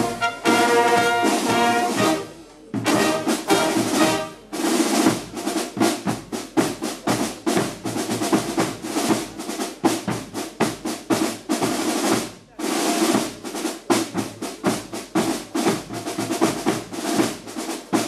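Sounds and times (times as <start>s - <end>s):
brass band playing: 0.0s - 6.4s
snare and bass drum cadence: 0.0s - 18.0s.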